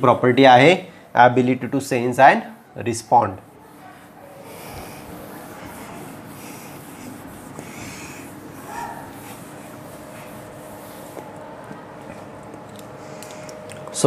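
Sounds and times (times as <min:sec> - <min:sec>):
eraser rubbing on whiteboard: 0:03.4 - 0:11.3.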